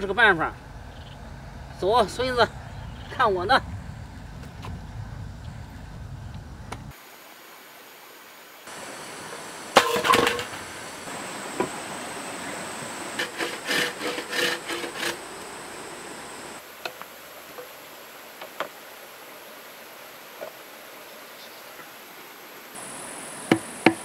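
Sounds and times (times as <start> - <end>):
bamboo tubes clattering: 9.3 - 10.8, 12.9 - 15.8.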